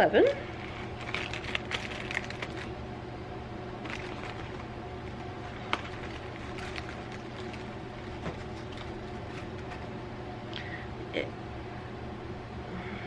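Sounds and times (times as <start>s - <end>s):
cardboard rustling: 0.4s - 2.7s, 3.8s - 10.0s.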